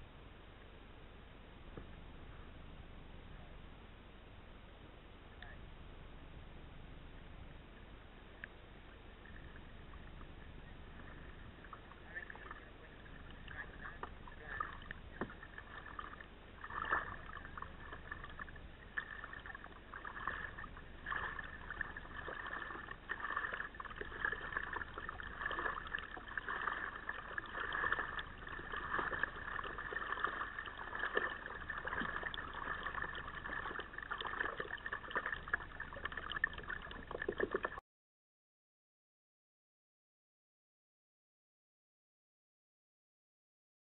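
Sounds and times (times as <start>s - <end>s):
muffled paddle splashes and trickling: 11.0s - 37.8s.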